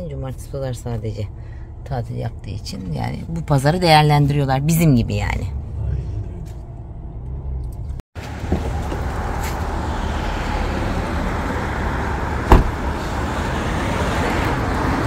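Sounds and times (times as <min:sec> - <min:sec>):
road and wind noise: 0:00.0 - 0:15.0
sharp knock: 0:12.5 - 0:12.8.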